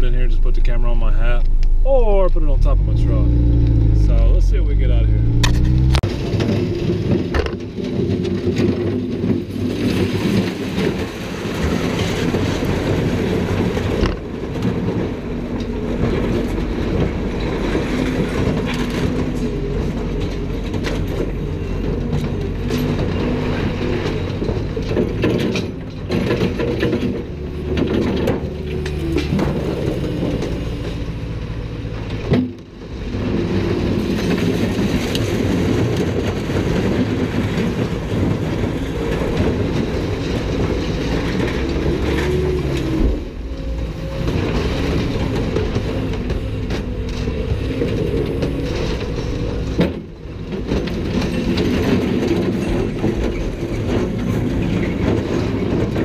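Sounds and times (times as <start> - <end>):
heavy diesel machinery rumbling: 0.0 - 56.0.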